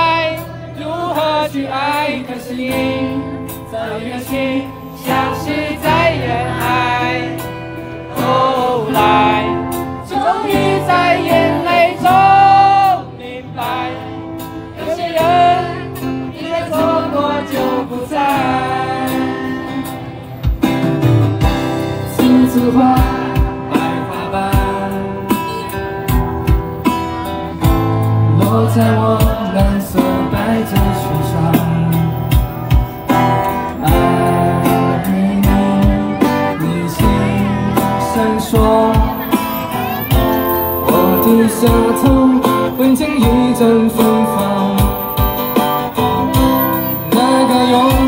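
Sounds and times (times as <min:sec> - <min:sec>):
electric guitar melody: 0:00.0 - 0:48.0
live band music: 0:14.2 - 0:48.0.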